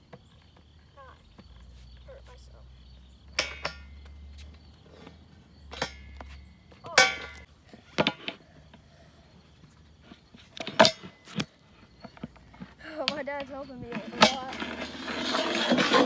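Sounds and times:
skateboard rolling on concrete: 0:00.0 - 0:02.5, 0:07.4 - 0:16.0.

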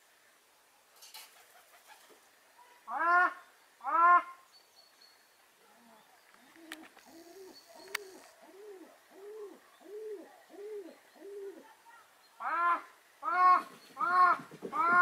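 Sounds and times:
faint clicks: 0:06.2 - 0:07.2, 0:07.8 - 0:08.4
soft low hoots: 0:06.4 - 0:11.6.

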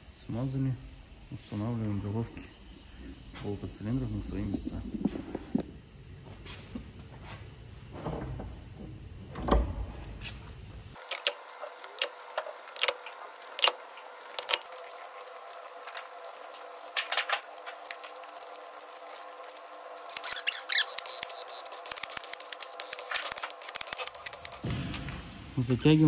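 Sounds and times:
heavy metal thud: 0:24.6 - 0:25.6.

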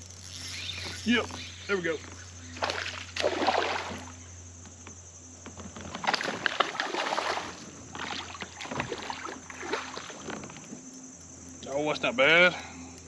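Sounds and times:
fish splashing at water surface: 0:02.6 - 0:04.2, 0:06.0 - 0:10.2.

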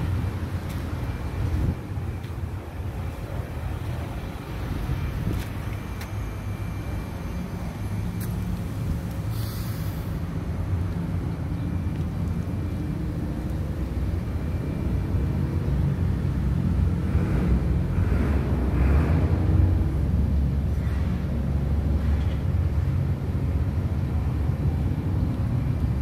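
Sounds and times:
diesel truck engine idling: 0:00.0 - 0:18.1
faint short hisses: 0:09.3 - 0:10.2.

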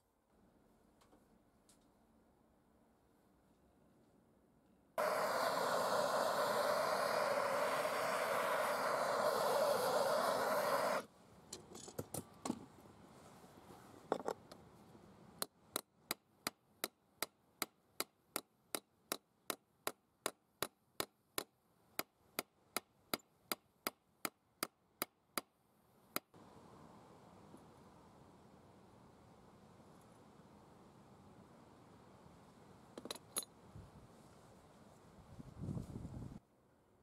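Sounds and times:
blowtorch flame hissing: 0:05.0 - 0:11.1.

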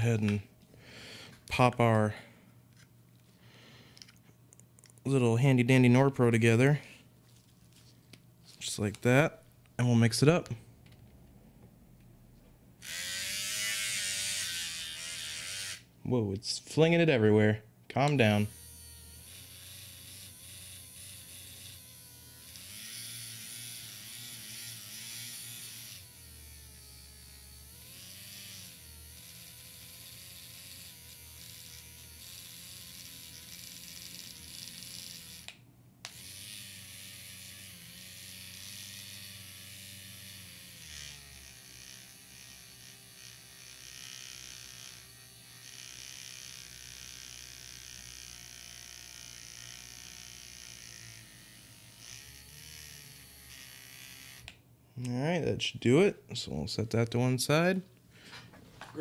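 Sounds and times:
handheld battery mixer buzzing: 0:12.8 - 0:15.9, 0:18.3 - 0:54.6.

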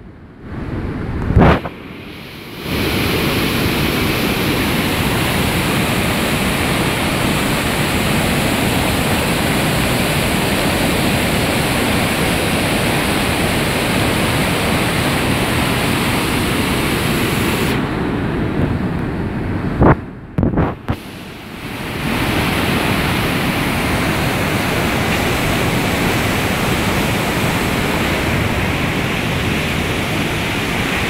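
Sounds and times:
river rushing: 0:00.0 - 0:31.0.

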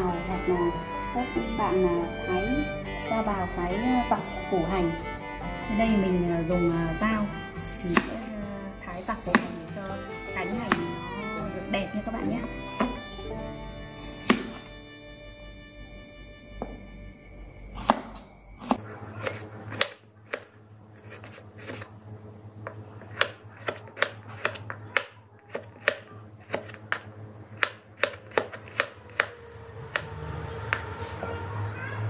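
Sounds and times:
knife tapping wooden cutting board: 0:22.6 - 0:30.1.

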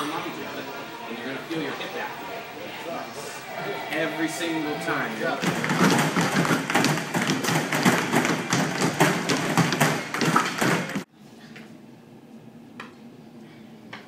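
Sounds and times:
voices: 0:00.0 - 0:06.5
rapid patter of taps and thumps: 0:05.4 - 0:11.1.

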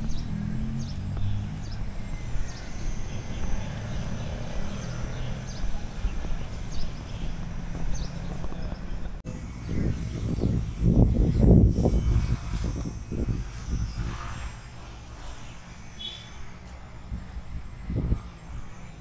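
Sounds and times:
small birds chirping: 0:00.0 - 0:14.5
city traffic rumble: 0:00.0 - 0:19.0.

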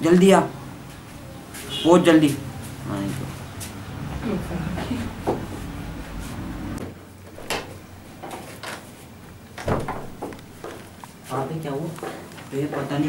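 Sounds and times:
door shutting thump: 0:07.3 - 0:08.4, 0:09.6 - 0:10.9
door latch click: 0:07.4 - 0:08.0, 0:09.6 - 0:10.8.

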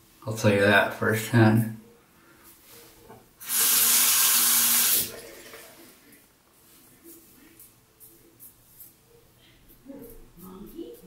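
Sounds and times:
sink tap running: 0:03.4 - 0:05.7.

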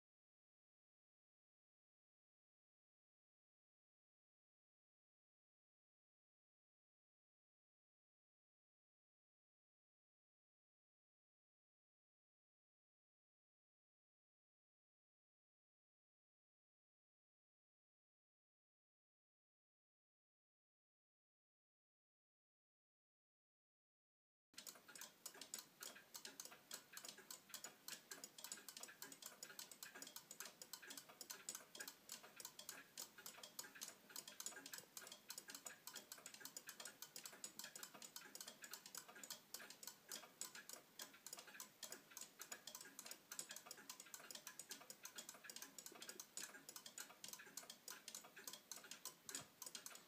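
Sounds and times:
pendulum clock ticking: 0:24.6 - 0:50.0.

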